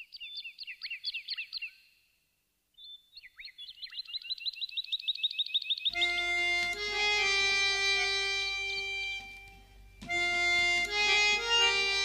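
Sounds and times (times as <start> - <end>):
bird chirping: 2.8 - 12.0.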